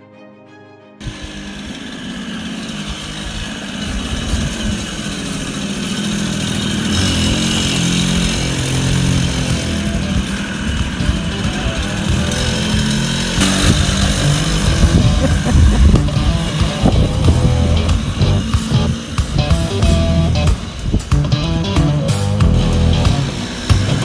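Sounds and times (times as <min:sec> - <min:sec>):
background music: 0:00.0 - 0:01.1, 0:08.9 - 0:24.0
moped two-stroke engine running: 0:01.0 - 0:24.0.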